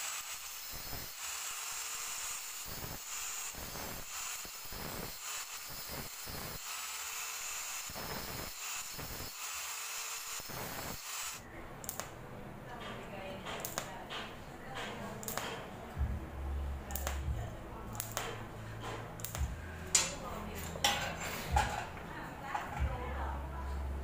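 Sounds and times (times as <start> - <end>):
angle grinder grinding steel: 0.0 - 11.4.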